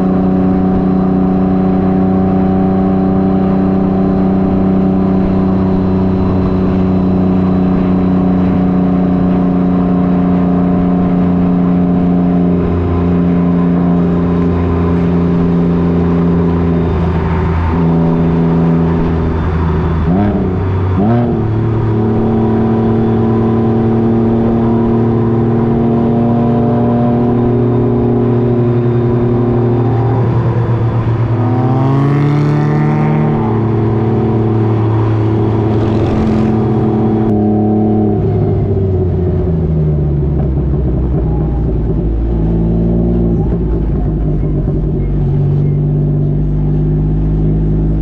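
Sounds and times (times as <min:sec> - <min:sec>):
motorcycle engine revving: 0:00.0 - 0:48.0.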